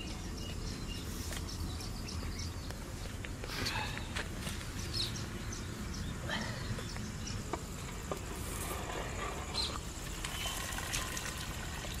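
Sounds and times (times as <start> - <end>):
insects: 0.0 - 12.0
bird chirps: 3.7 - 8.0.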